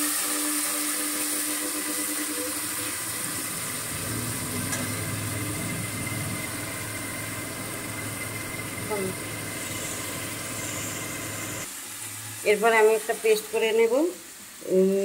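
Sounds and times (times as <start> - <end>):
onions sizzling in oil: 0.0 - 15.0
low steady hum: 2.8 - 11.7.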